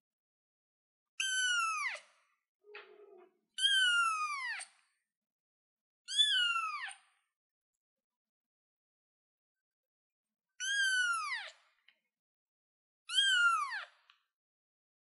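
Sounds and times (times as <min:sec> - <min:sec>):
kitten meowing: 0:06.1 - 0:07.0, 0:13.1 - 0:13.8.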